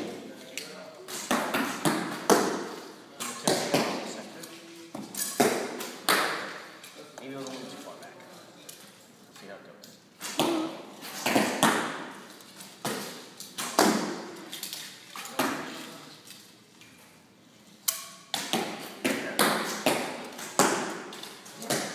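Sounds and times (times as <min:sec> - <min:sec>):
arrows thudding into targets: 0:00.0 - 0:07.0, 0:10.2 - 0:16.0, 0:17.8 - 0:21.9.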